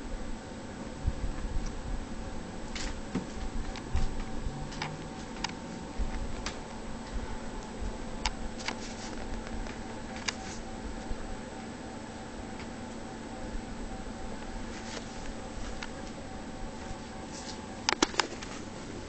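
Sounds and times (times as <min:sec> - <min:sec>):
faint low rumble: 0:00.0 - 0:11.6
low steady hum: 0:00.0 - 0:19.0.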